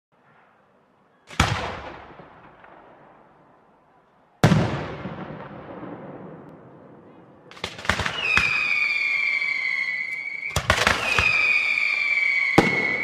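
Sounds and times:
firework shells bursting with echo: 7.5s - 13.0s.

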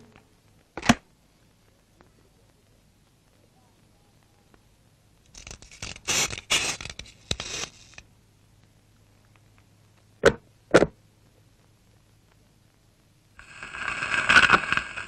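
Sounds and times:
cartoon scraping rasping noises: 5.3s - 8.0s.

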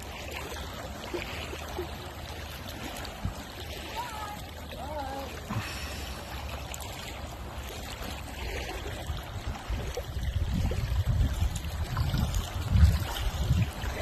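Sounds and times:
water lapping at shore: 0.0s - 14.0s
wind buffeting microphone: 8.4s - 14.0s.

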